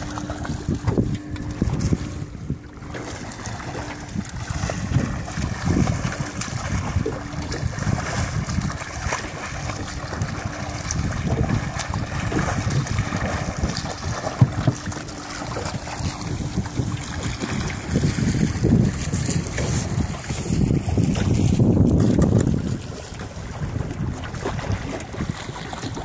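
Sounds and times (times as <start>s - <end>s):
low steady hum: 0.0s - 26.0s
swimmer splashing: 0.0s - 26.0s
water lapping: 0.0s - 26.0s
wind buffeting microphone: 0.0s - 26.0s.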